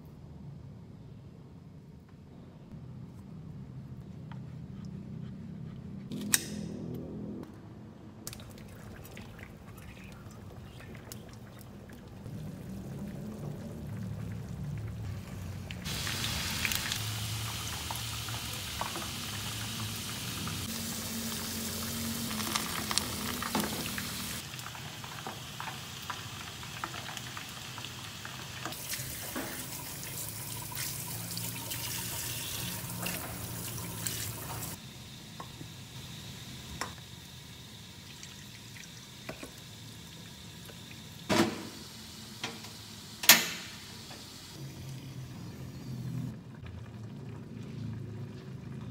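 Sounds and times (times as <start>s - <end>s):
potatoes sizzling in oil: 15.1s - 41.2s.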